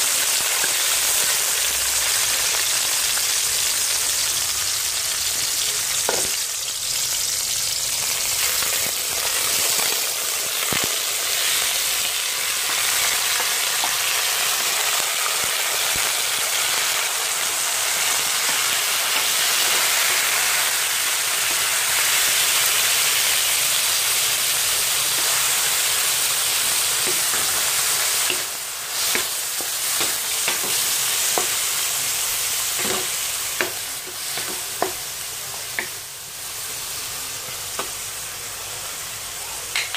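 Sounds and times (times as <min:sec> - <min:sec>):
food sizzling in hot oil: 0:00.0 - 0:39.9
spatula tapping a wok: 0:27.0 - 0:31.7, 0:32.8 - 0:35.0, 0:35.7 - 0:36.0.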